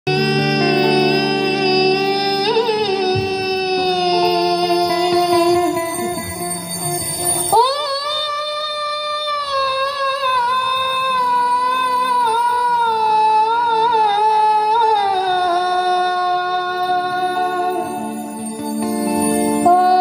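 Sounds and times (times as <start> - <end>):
held accompaniment notes: 0.1 - 8.0.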